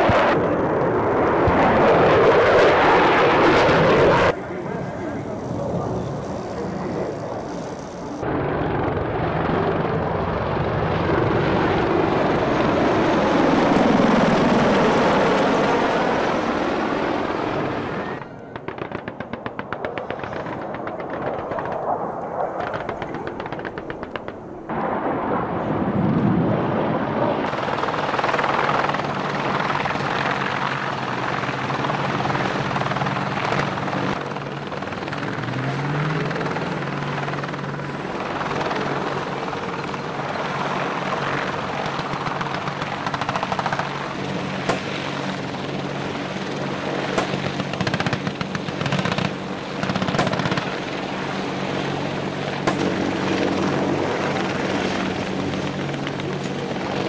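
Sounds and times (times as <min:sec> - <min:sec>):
helicopter rotor drone: 0:00.0 - 0:57.0
sharp cracks: 0:18.5 - 0:24.7, 0:41.7 - 0:44.0, 0:44.6 - 0:45.4, 0:47.0 - 0:51.0, 0:52.6 - 0:53.2.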